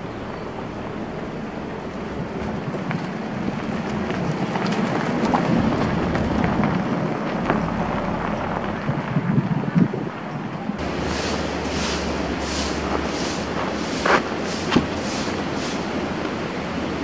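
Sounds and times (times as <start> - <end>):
tyres crunching over gravel: 10.8 - 16.4.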